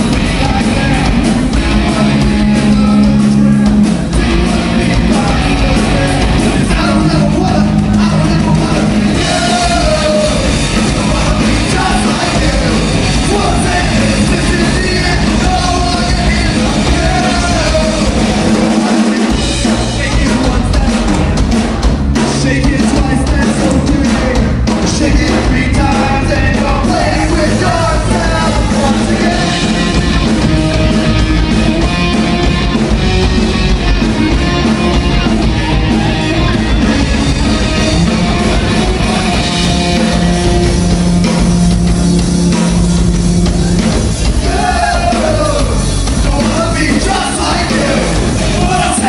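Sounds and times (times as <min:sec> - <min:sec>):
bass guitar: 0:00.0 - 0:49.0
drum kit: 0:00.0 - 0:49.0
electric guitar: 0:00.0 - 0:49.0
person singing: 0:00.1 - 0:21.4, 0:22.2 - 0:30.0, 0:43.7 - 0:49.0.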